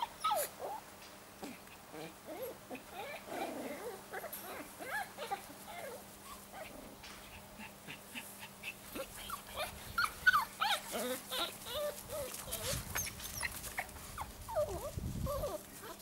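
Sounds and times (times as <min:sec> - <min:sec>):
puppies whimpering and yipping: 0:00.0 - 0:00.8, 0:02.0 - 0:16.0.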